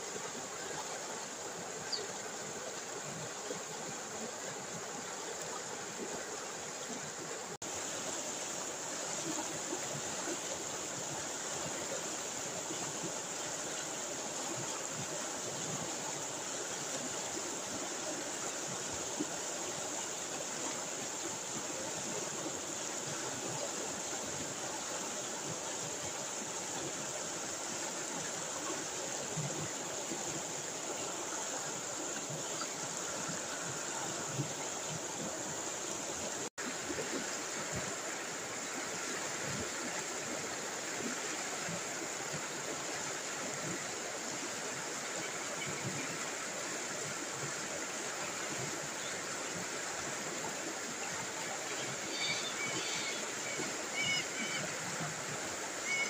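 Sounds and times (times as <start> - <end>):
water rushing over rocks: 0.0 - 56.0.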